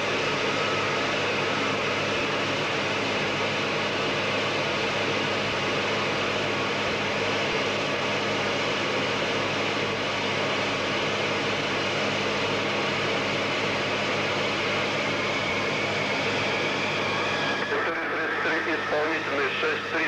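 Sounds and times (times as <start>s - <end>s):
jet cockpit rushing din: 14.9s - 20.0s.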